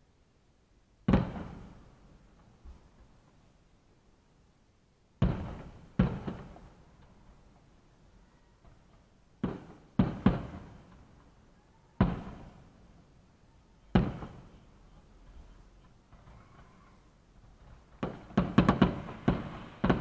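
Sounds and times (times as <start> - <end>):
muffled fireworks bangs: 1.0 - 3.2, 5.2 - 7.7, 8.6 - 11.4, 12.0 - 12.9, 13.9 - 14.8, 16.0 - 20.0.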